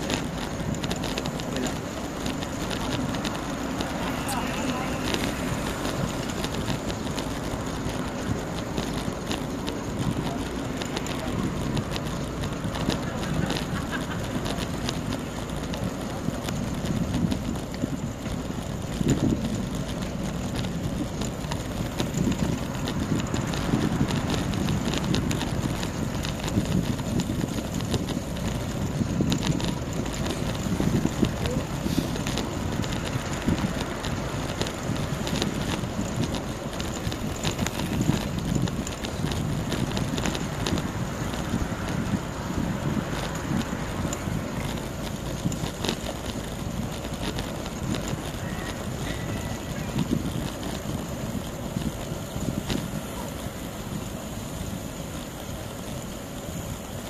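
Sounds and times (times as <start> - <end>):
wind rumbling on microphone: 0.0 - 57.0.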